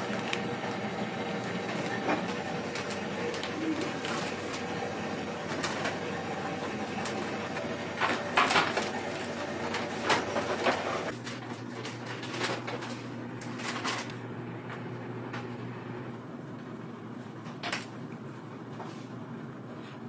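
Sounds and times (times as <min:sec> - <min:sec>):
utensils clicking and clattering: 0:00.0 - 0:14.2
steady machine hum: 0:00.0 - 0:20.0.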